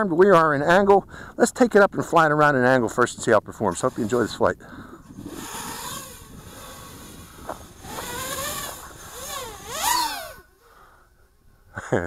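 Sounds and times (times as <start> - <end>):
quadcopter motors whining: 3.7 - 11.4.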